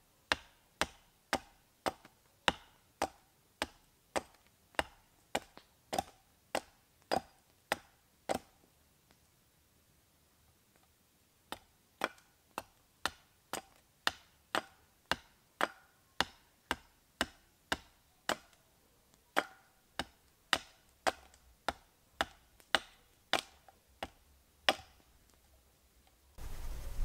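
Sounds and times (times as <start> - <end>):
hatchet chopping wood: 0.3 - 8.6, 11.5 - 18.6, 19.3 - 25.1.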